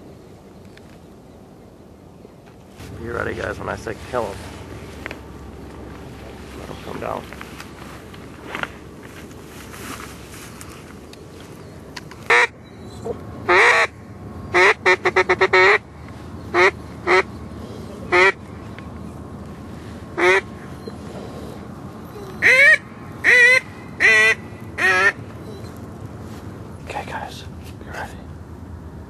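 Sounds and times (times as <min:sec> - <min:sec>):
duck call quacks: 0:12.3 - 0:12.6, 0:13.5 - 0:13.9, 0:14.5 - 0:15.8, 0:16.5 - 0:17.3, 0:18.1 - 0:18.4, 0:20.2 - 0:20.5, 0:22.4 - 0:25.2.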